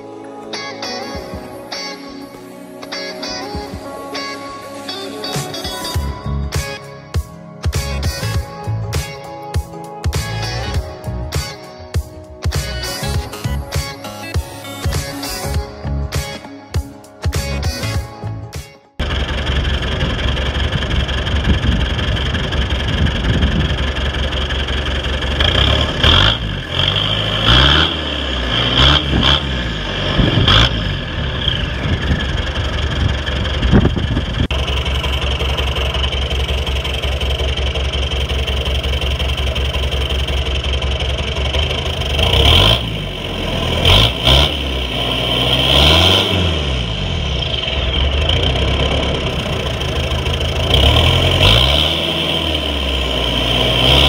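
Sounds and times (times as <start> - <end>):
car engine idling and revving: 19.0 - 54.0.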